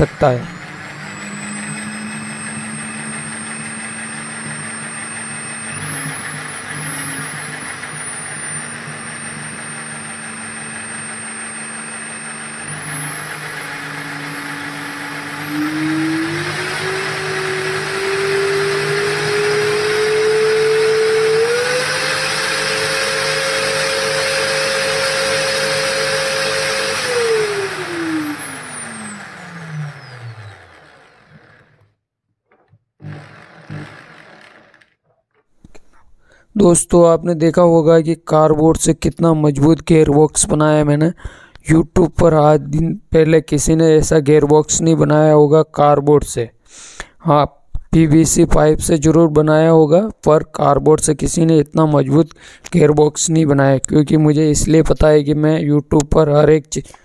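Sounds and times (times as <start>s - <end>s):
electric drill motor whine: 0.0s - 32.0s, 33.0s - 35.0s.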